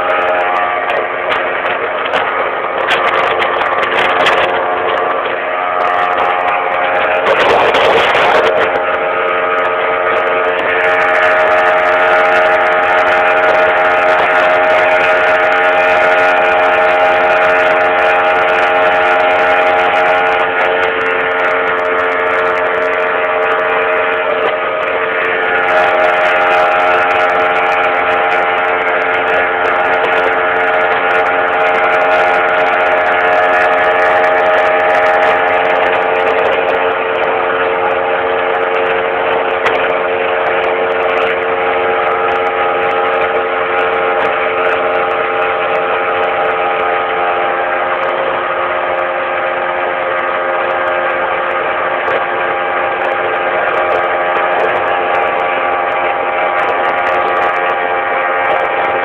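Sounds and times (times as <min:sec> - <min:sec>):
boat motor droning: 0:00.0 - 0:59.0.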